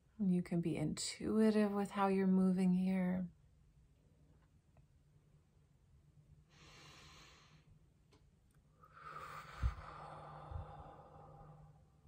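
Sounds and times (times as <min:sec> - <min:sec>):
woman breathing: 0:06.4 - 0:07.9, 0:08.7 - 0:12.0.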